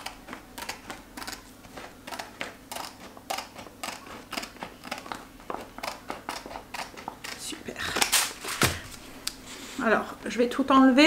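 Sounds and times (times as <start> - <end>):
scissors snipping vinyl: 0.0 - 8.6.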